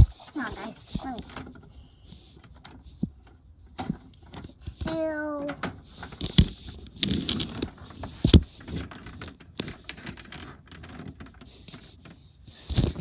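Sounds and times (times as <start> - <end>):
rustling: 0.0 - 13.0.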